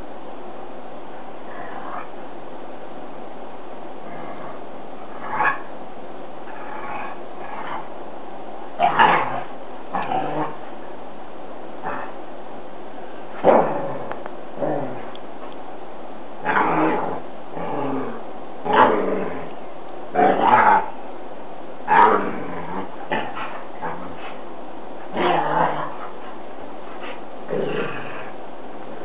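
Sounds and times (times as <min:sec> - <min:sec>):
dogs growling: 0:01.4 - 0:02.2, 0:04.0 - 0:05.8, 0:06.4 - 0:08.1, 0:08.7 - 0:10.8, 0:11.8 - 0:12.2, 0:13.2 - 0:15.6, 0:16.4 - 0:21.0, 0:21.8 - 0:29.0.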